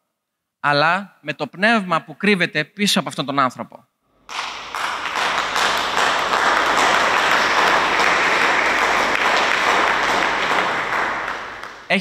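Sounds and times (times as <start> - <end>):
crowd applauding: 4.3 - 12.0.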